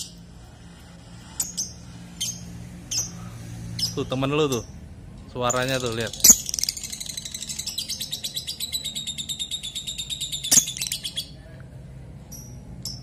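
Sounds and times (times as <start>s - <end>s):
lovebird chattering trill: 5.5s - 11.4s.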